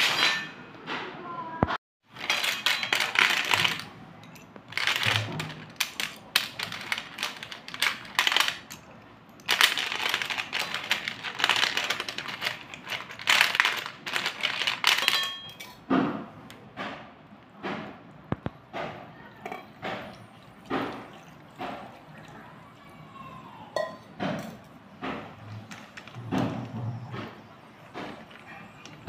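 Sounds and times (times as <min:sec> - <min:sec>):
slate pencils clattering: 0:02.2 - 0:15.8.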